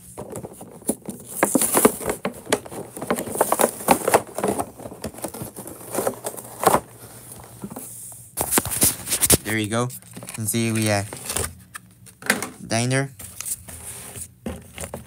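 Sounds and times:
plastic packaging crinkling: 0.0s - 7.6s.

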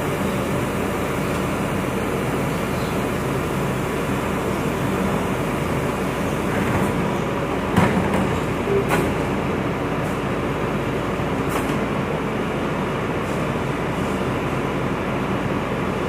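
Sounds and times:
truck diesel engine running: 0.0s - 7.8s.

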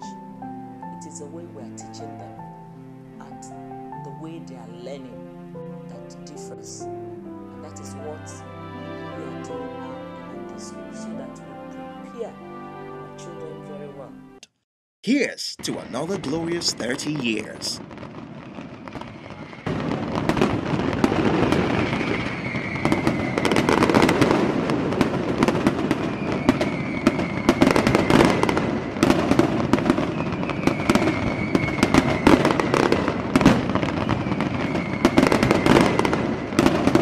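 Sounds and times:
falling firework whistle: 15.6s - 37.0s
fireworks crackling and popping: 15.6s - 37.0s.

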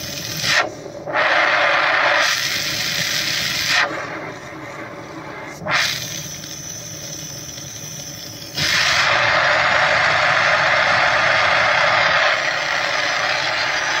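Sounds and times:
torch flame hissing: 5.2s - 14.0s.

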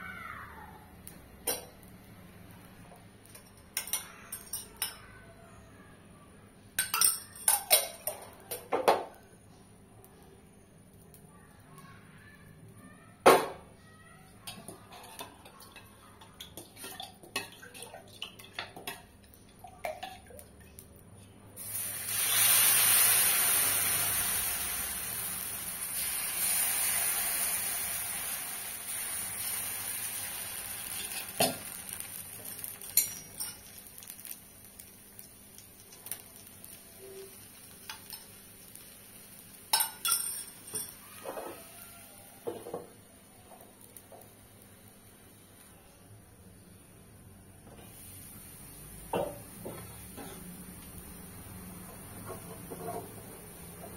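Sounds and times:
batter sizzling on hot pan: 14.4s - 46.0s, 46.6s - 53.9s.

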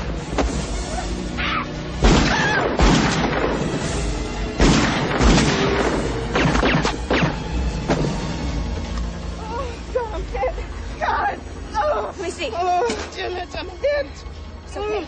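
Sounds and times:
film score music: 0.0s - 15.0s
gunshots: 2.0s - 3.8s, 4.6s - 7.5s.

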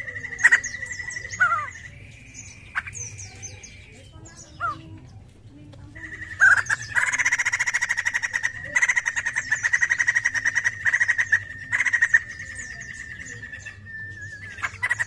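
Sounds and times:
bird rattling chatter: 6.0s - 12.2s.

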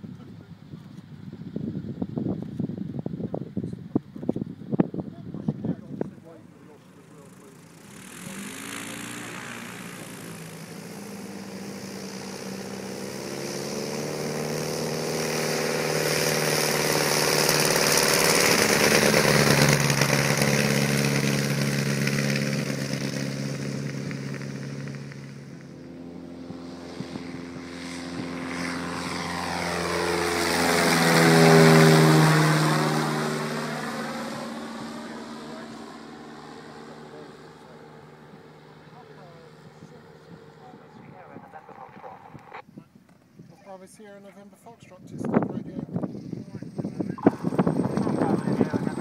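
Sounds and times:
propeller aircraft flying past: 0.0s - 42.6s, 43.7s - 49.0s.

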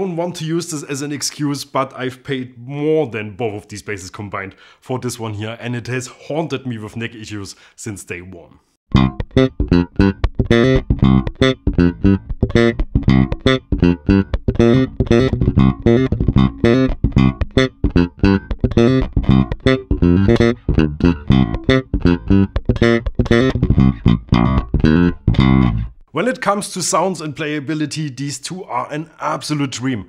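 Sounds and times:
funky electric bass line: 8.9s - 26.0s.

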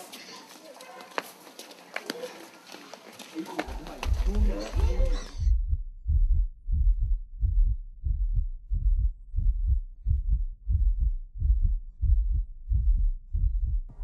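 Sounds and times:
heartbeat: 3.7s - 14.0s.

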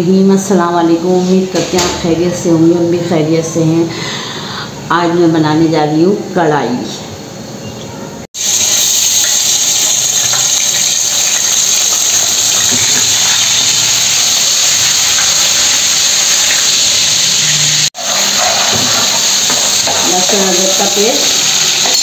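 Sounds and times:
hot oil sizzling in a frying pan: 8.4s - 22.0s.

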